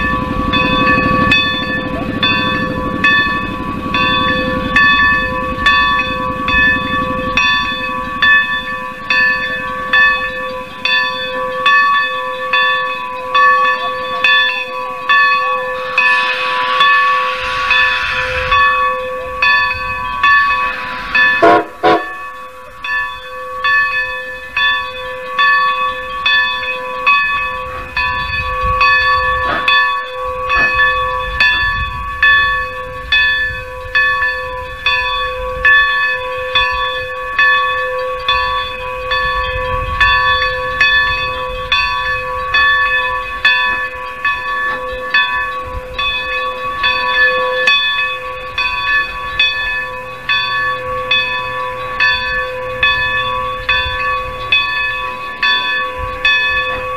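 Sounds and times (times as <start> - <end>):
locomotive bell ringing: 0.0 - 56.9
steam hissing: 14.2 - 24.9
low rumble: 14.9 - 23.2.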